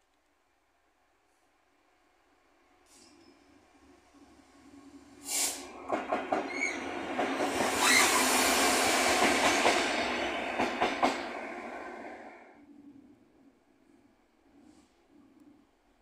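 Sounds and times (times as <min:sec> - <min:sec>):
diesel locomotive passing: 0:03.0 - 0:14.6
short hiss: 0:05.2 - 0:05.8.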